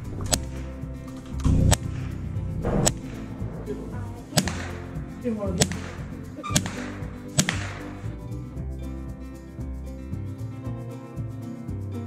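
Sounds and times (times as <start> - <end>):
background music: 0.0 - 12.0
shotgun shots: 2.6 - 8.0.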